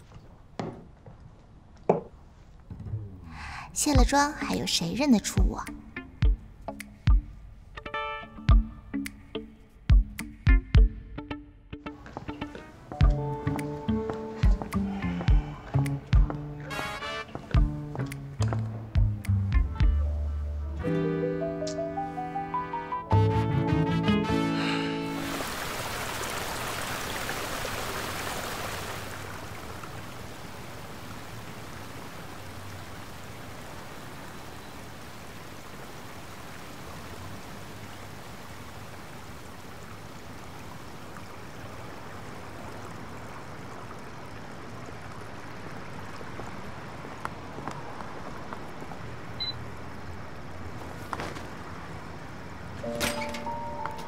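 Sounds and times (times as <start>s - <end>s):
fountain splashing: 25.0s - 52.8s
rain on wet pavement: 25.1s - 52.9s.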